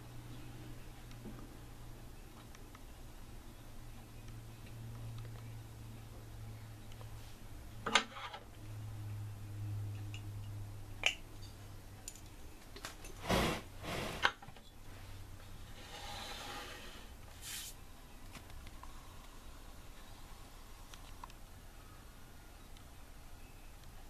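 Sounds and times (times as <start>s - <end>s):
low steady hum: 0.0s - 24.0s
scrape: 13.2s - 14.3s, 15.6s - 17.8s
soft rustle: 14.8s - 17.8s.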